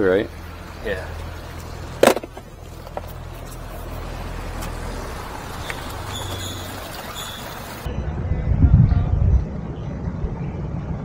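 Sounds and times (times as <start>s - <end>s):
outboard motor idling: 0.0s - 7.9s.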